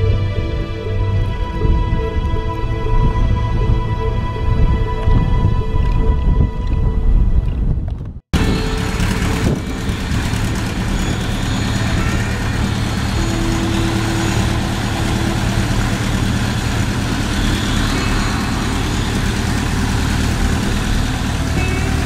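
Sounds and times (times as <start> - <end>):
piston aircraft engines idling: 8.4 - 22.0.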